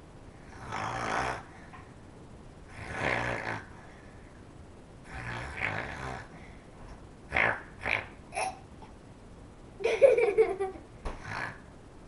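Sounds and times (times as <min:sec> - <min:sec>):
child snoring: 0:00.4 - 0:01.5, 0:02.7 - 0:03.8, 0:05.0 - 0:06.4, 0:11.2 - 0:11.7
quiet breathing: 0:03.6 - 0:04.6, 0:06.2 - 0:07.0.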